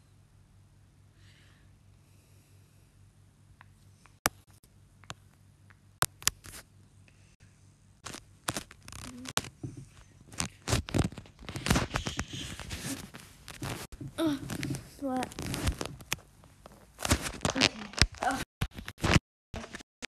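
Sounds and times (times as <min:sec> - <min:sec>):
knocks and rustling: 0:08.0 - 0:17.7.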